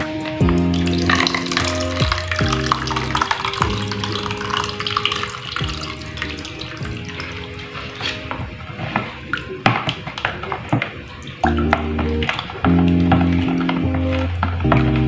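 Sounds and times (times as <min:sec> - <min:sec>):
background music: 0:00.0 - 0:15.0
liquid pouring into a bowl: 0:00.6 - 0:08.2.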